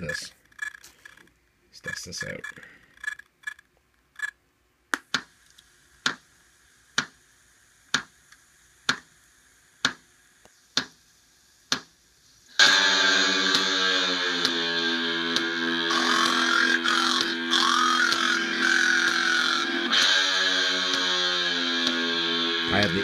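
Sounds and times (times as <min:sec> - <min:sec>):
sharp ticks from speakers: 0:00.1 - 0:06.3, 0:06.9 - 0:07.2, 0:07.9 - 0:09.2, 0:09.8 - 0:11.0, 0:11.7 - 0:22.4
loud music with held notes: 0:12.6 - 0:23.0.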